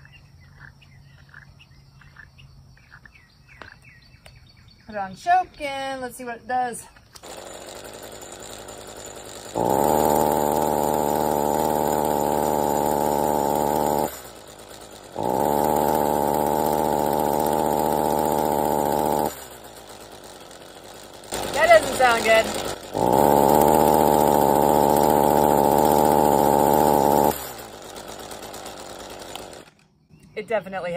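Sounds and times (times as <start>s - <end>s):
string trimmer engine revving: 7.2s - 29.9s.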